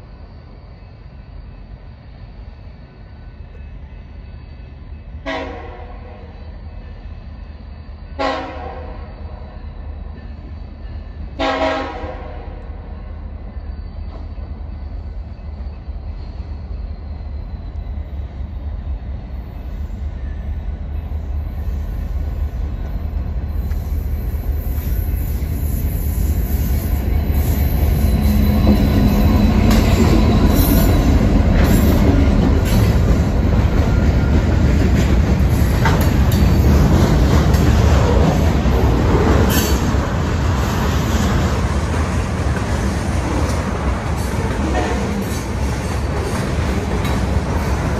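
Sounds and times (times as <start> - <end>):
freight train rumble: 0.0 - 47.9
train horn blasts: 5.2 - 6.3, 8.2 - 9.1, 11.4 - 12.7, 44.6 - 45.3
train wheels clattering: 23.1 - 47.9.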